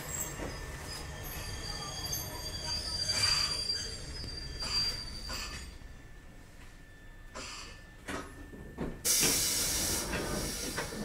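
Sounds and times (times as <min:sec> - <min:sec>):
train knocks: 0:08.0 - 0:11.0
compressed air hiss: 0:09.1 - 0:11.0.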